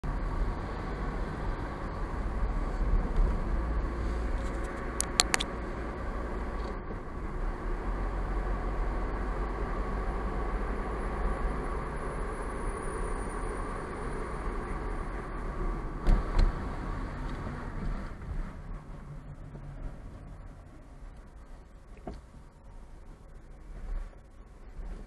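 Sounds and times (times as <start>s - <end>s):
car road and engine noise: 0.0s - 25.0s
sharp clicks: 5.0s - 5.5s.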